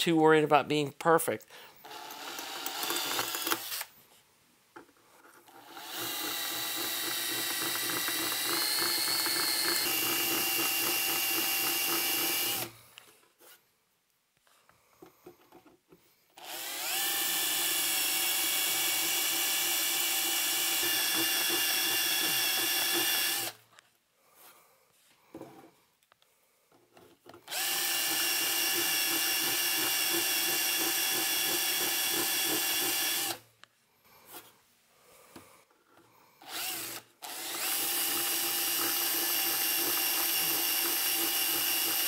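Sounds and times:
hand drill drilling metal: 1.8 - 3.9, 5.4 - 12.8, 16.4 - 23.6, 27.4 - 33.4, 36.4 - 42.0.

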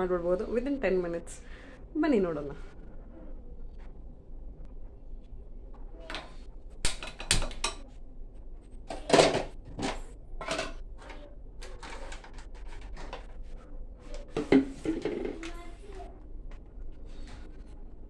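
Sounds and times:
kitchen items clicking and clattering: 6.1 - 8.0, 8.8 - 13.5, 14.1 - 15.8.

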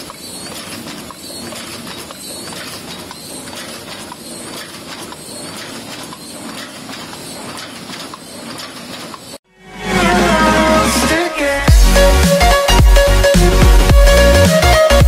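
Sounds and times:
machine mechanical clatter: 0.0 - 9.4.

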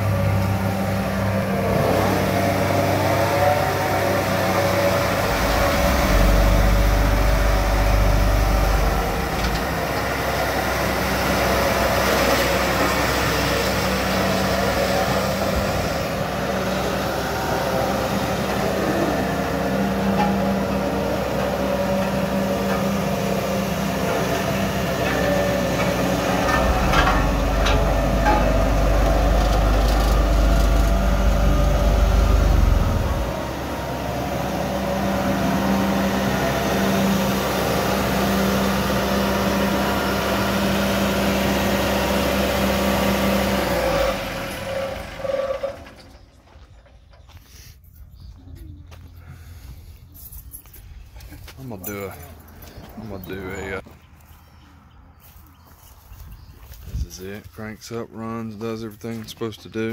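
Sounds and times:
roller diesel engine running: 0.0 - 59.9.

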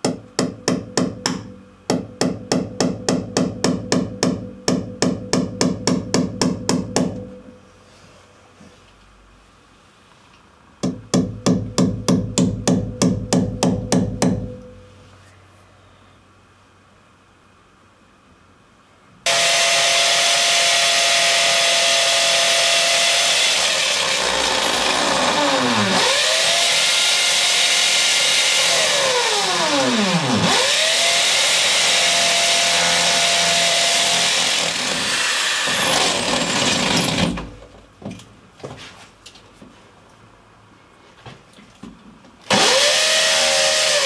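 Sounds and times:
electric drill boring into tile: 19.3 - 37.5, 42.5 - 44.0.

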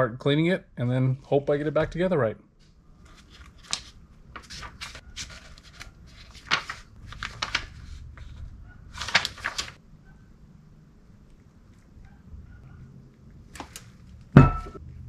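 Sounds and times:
paper pages turning: 3.0 - 9.8, 13.6 - 14.0.

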